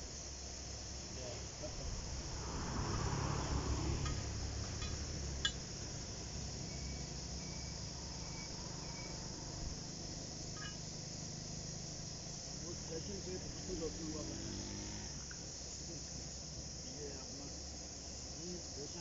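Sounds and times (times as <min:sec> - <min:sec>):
insects chirring: 0:00.0 - 0:19.0
light clinks: 0:10.5 - 0:10.9.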